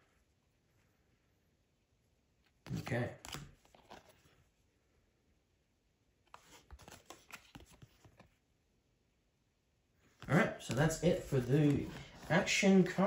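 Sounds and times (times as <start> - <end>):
cards rustling and clicking: 2.5 - 4.4, 6.3 - 8.4, 10.1 - 13.0.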